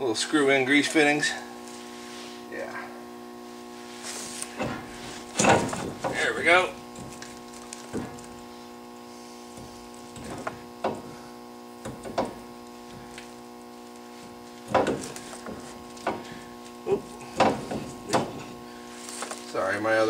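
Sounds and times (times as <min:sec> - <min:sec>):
steady electrical hum: 0:00.0 - 0:20.0
heavy knocks: 0:04.5 - 0:08.5, 0:09.5 - 0:13.2, 0:14.6 - 0:18.6.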